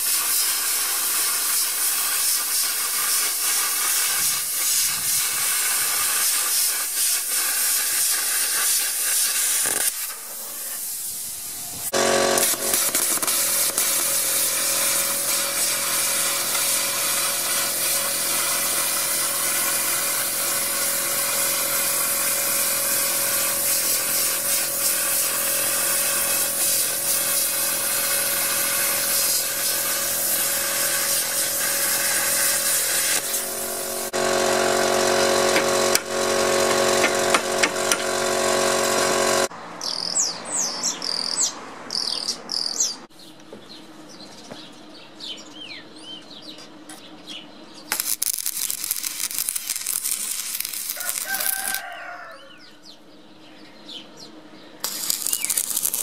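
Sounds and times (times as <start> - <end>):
plasma cutter hissing: 0.0 - 39.5, 47.9 - 51.9, 54.8 - 56.0
birds chirping: 39.8 - 47.9.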